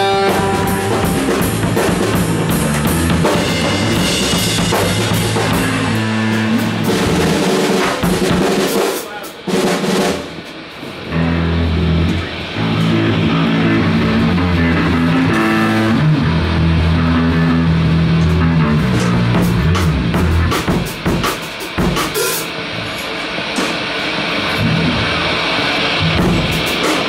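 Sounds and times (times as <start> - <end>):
bass guitar chords: 0.0 - 8.5, 11.0 - 22.0, 24.2 - 26.8
distorted electric guitar: 0.0 - 27.0
drums and cymbal hits: 0.0 - 27.0.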